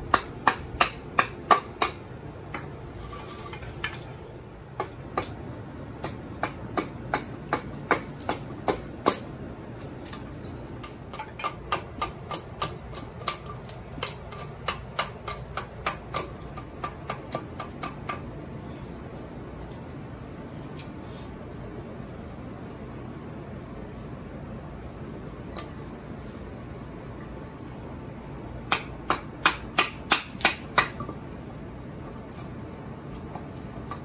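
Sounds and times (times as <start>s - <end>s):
axe chopping wood: 28.7s - 31.1s.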